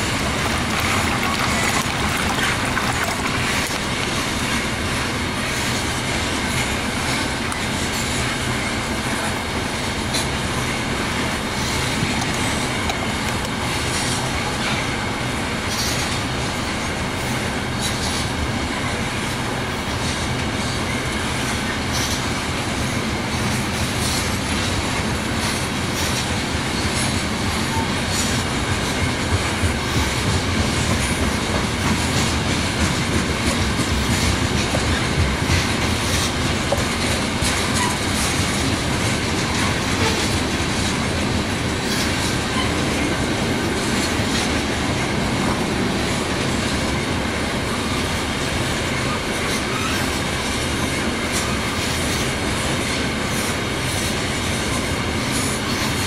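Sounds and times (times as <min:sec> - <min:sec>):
train wheels clacking over rail joints: 0:00.0 - 0:56.0
faint wheel squeal on rail: 0:13.9 - 0:19.0, 0:19.8 - 0:22.4, 0:23.4 - 0:29.2, 0:34.0 - 0:38.8, 0:39.4 - 0:41.0, 0:41.7 - 0:43.1, 0:47.6 - 0:56.0.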